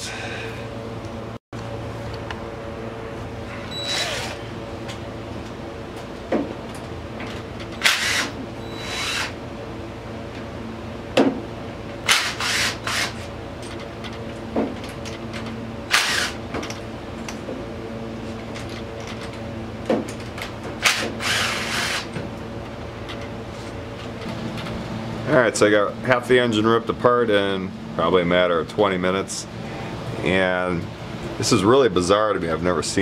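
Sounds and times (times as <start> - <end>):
steady hum: 0.0 - 33.0
tool noise bursts: 3.5 - 4.6, 7.7 - 9.4, 12.0 - 13.3, 15.9 - 16.4, 20.8 - 22.2.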